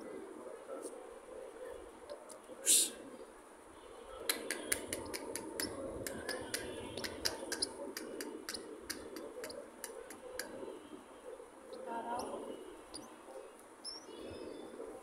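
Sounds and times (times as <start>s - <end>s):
sharp clicks: 4.3s - 10.5s.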